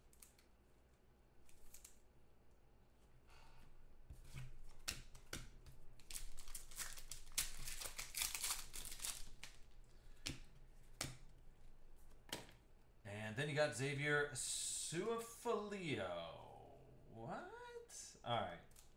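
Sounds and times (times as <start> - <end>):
foil wrapper tearing and crinkling: 6.0 - 9.7.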